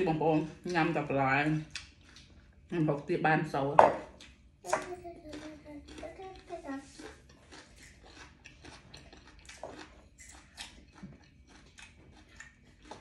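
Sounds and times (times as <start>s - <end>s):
person chewing and crunching: 1.7s - 2.7s, 4.1s - 13.0s.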